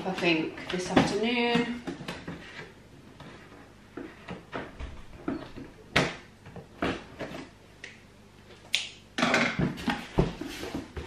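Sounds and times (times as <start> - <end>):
cardboard scraping and rustling: 9.8 - 11.0.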